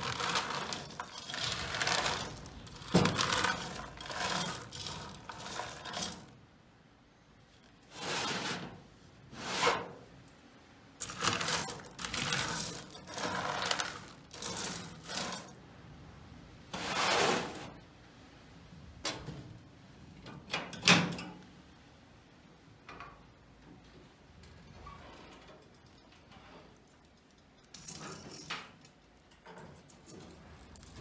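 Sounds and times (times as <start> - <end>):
metal tray rattling and scraping: 0.0 - 6.4, 11.0 - 15.6.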